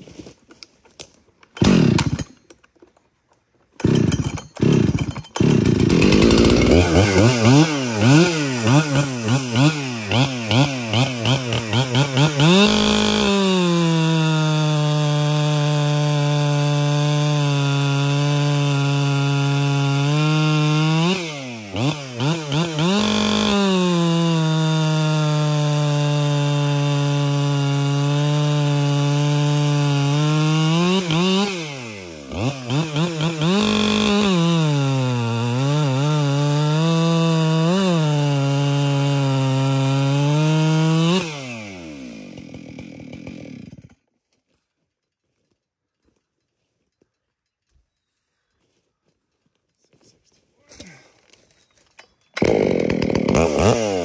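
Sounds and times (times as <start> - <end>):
chainsaw revving and cutting log: 1.5 - 2.4, 3.8 - 44.0, 52.4 - 54.0.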